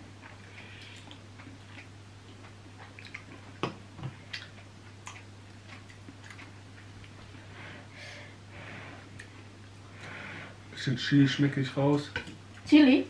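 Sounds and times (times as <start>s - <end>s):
steady low hum: 0.0s - 13.0s
slurping and chewing: 0.2s - 3.6s, 4.2s - 7.6s.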